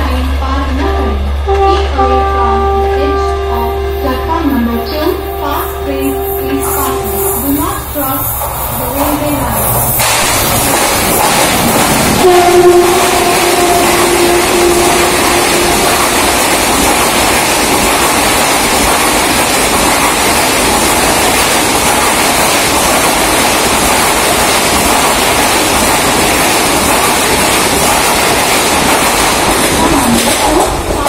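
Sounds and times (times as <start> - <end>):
passenger train rushing past: 0.0 - 31.0
train horn: 0.6 - 8.2, 12.1 - 16.9.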